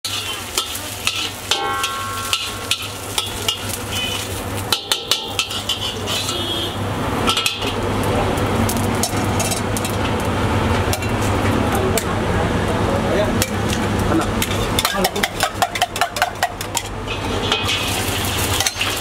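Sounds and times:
oil sizzling: 0:00.0 - 0:19.0
metal spatula scraping a wok: 0:00.1 - 0:07.8, 0:14.4 - 0:19.0.

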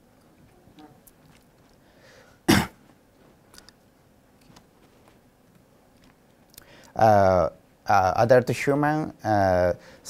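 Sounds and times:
person coughing: 0:02.5 - 0:02.8.

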